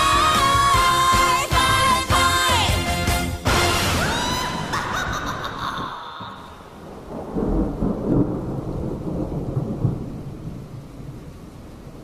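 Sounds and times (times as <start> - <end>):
steady rain: 3.0 - 12.0
thunder rumbling: 3.6 - 12.0.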